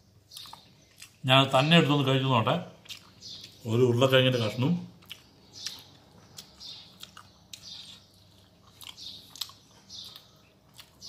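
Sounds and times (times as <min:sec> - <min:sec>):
person chewing food: 0:00.2 - 0:01.2, 0:02.7 - 0:03.6, 0:04.9 - 0:11.0.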